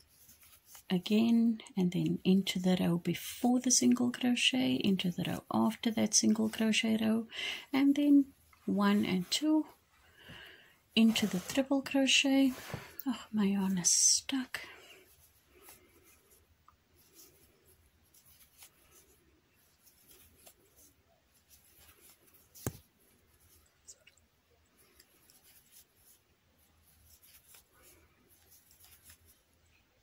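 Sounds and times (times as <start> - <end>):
yarn and crochet hook rustling: 0.0 - 30.0.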